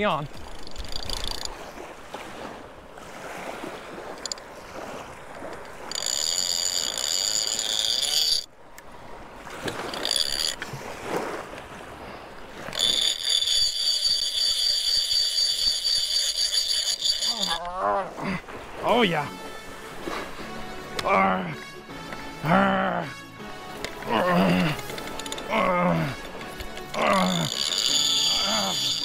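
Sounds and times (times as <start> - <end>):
fishing reel screaming: 0.2 - 1.8, 4.2 - 4.4, 5.6 - 8.5, 9.7 - 10.7, 12.5 - 17.8, 24.2 - 29.0.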